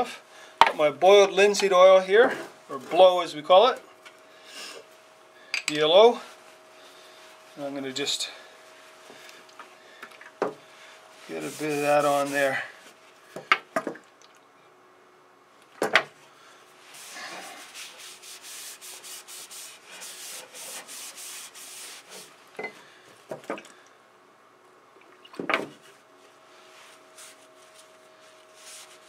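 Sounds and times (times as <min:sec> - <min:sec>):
cloth rag rubbing wood: 0:10.8 - 0:13.0, 0:16.8 - 0:22.4, 0:26.6 - 0:29.0.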